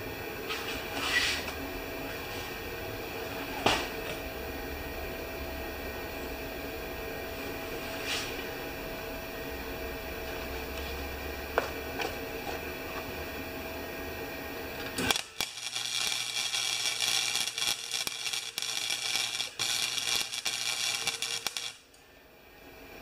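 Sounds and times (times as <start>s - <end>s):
steady welder hum: 0.0s - 23.0s
welder arc crackling: 14.2s - 22.0s.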